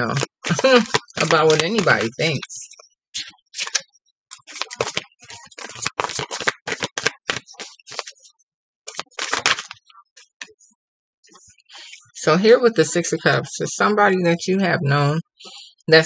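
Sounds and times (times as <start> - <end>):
cards being shuffled: 0.0 - 2.5, 3.2 - 8.2, 8.9 - 10.5.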